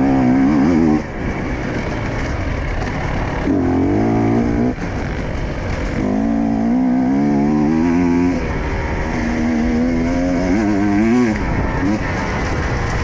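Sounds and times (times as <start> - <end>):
motorcycle engine revving: 0.0 - 13.0
track noise: 0.0 - 13.0
wind noise: 0.0 - 13.0.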